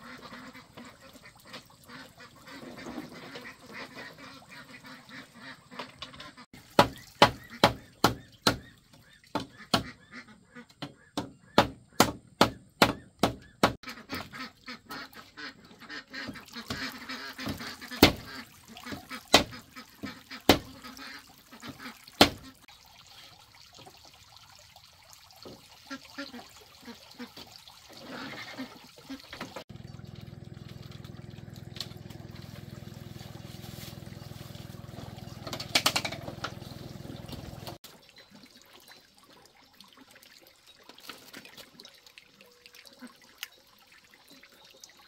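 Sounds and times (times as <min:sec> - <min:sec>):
machete chopping bamboo: 0:06.8 - 0:08.6, 0:11.2 - 0:13.8, 0:18.0 - 0:18.3, 0:35.4 - 0:36.3.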